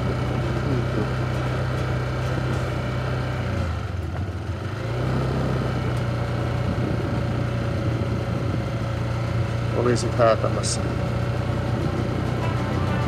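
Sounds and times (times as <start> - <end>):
road noise: 0.0 - 13.0
vehicle engine droning: 0.0 - 13.0.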